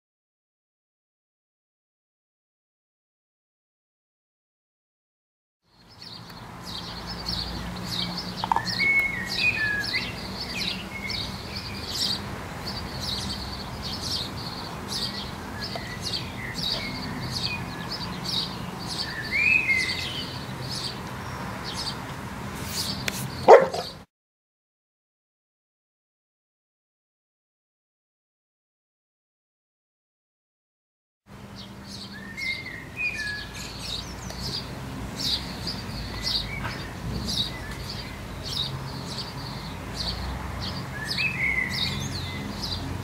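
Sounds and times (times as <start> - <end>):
birds chirping: 5.7 - 24.1, 31.3 - 43.0
dog sharp cry: 23.4 - 24.0.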